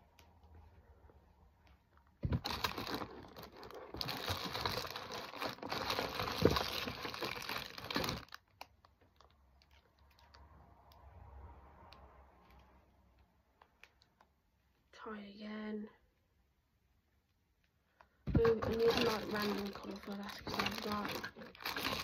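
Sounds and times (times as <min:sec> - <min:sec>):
rummaging among small objects: 0:02.2 - 0:08.4, 0:18.3 - 0:22.0.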